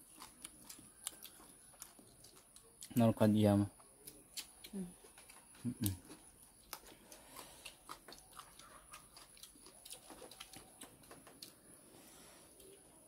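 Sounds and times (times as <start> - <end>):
mouth smacks from chewing: 4.0 - 11.7.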